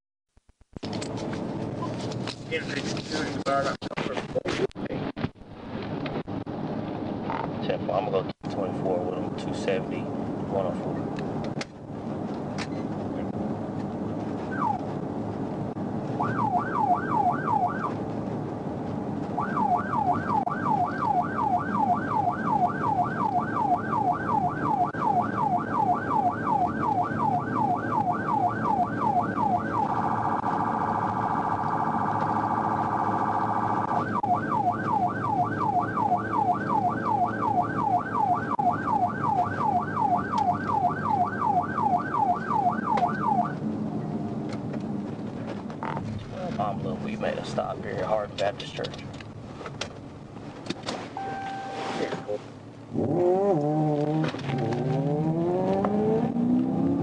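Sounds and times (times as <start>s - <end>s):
car engine and road noise: 0.4s - 57.0s
police siren yelping: 14.4s - 14.9s, 16.2s - 18.0s, 19.4s - 43.6s.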